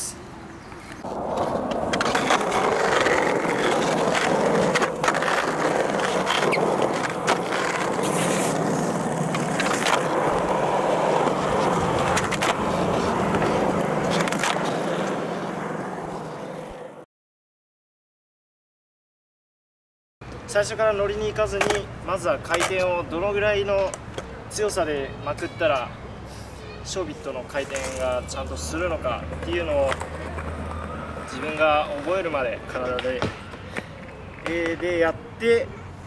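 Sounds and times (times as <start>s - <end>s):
skateboard wheels rolling: 0.4s - 17.0s, 27.4s - 35.2s
skateboard clacks: 1.1s - 16.0s, 21.5s - 22.8s.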